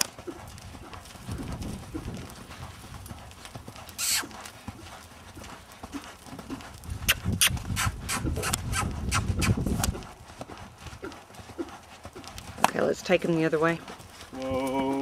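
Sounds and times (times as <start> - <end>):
hoofbeats on sand: 0.0 - 15.0.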